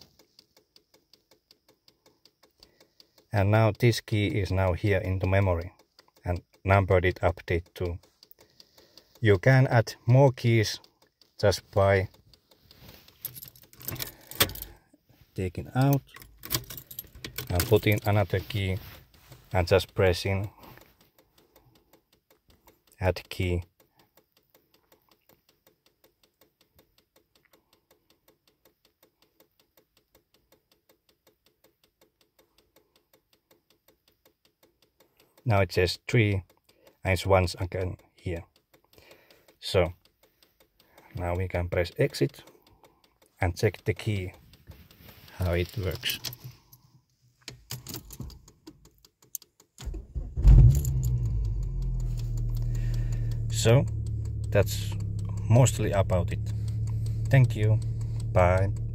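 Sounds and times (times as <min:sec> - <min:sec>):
car engine cranking and idling: 0:00.0 - 0:58.9
faint rapid ticking: 0:00.0 - 0:58.9
ignition key clicks: 0:10.4 - 0:22.6, 0:41.9 - 0:46.8, 0:47.4 - 0:58.9.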